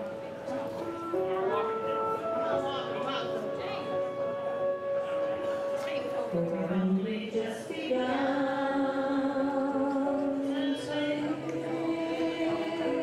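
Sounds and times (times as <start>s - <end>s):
group of people singing: 6.9s - 13.0s.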